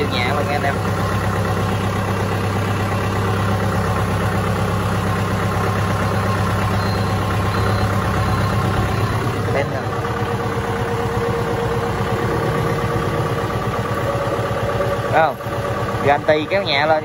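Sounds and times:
tractor diesel engine idling: 0.0 - 17.0.

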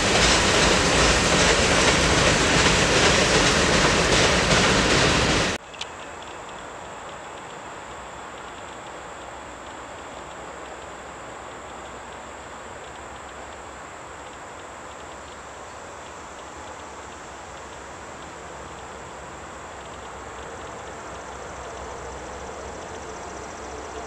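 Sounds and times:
insects trilling: 5.6 - 24.0.

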